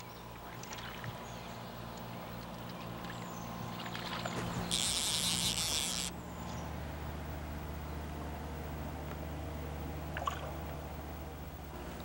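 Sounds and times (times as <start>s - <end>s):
steady low hum: 0.0s - 12.0s
fishing reel drag buzzing: 4.2s - 6.2s.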